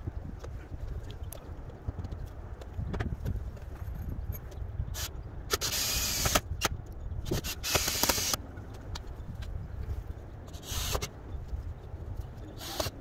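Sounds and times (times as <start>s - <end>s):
cordless drill driving screws: 5.0s - 6.4s, 7.4s - 8.4s, 10.6s - 11.1s, 12.6s - 13.0s.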